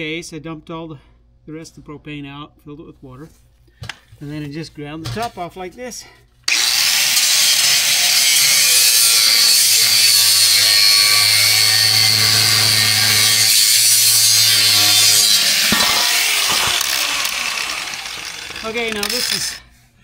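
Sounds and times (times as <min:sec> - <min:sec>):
angle grinder cutting metal: 0:06.5 - 0:19.7.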